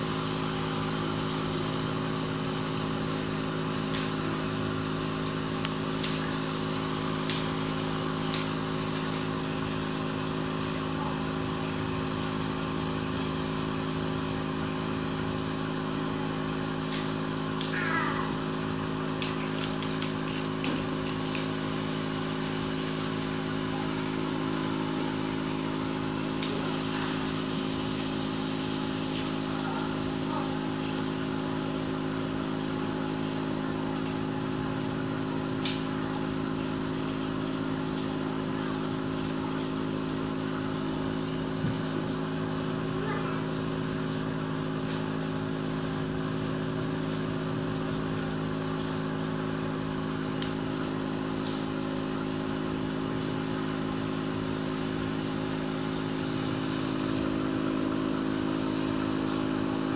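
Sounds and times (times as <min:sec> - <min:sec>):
bubbles fizzing: 0:00.0 - 0:12.8, 0:15.7 - 0:33.6
aquarium air pump humming: 0:00.0 - 0:59.9.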